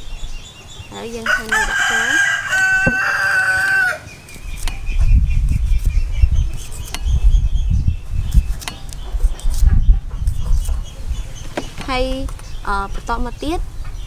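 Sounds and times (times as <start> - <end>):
rooster crowing: 1.3 - 4.1.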